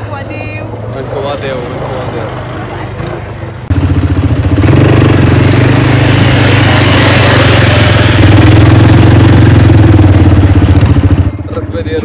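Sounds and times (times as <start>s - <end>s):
road noise: 0.0s - 12.0s
quad bike engine running: 2.9s - 12.0s.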